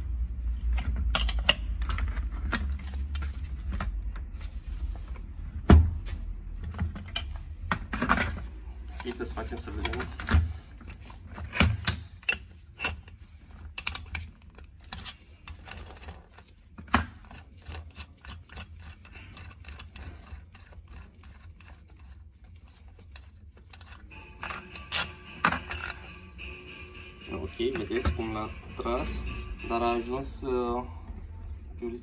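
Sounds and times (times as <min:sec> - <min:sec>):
spanner clicking and tapping on nut: 0:09.0 - 0:16.1.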